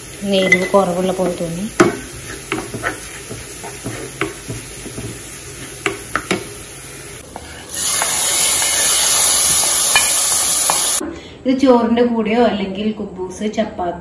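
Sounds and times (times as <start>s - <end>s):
loud steady sizzle: 0.0s - 11.0s
spoon stirring and tapping in pan: 0.4s - 6.6s, 9.9s - 10.9s.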